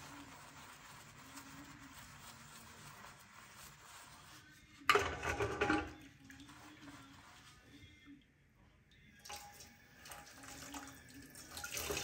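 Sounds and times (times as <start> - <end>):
water splashing into metal sink: 9.2 - 12.0.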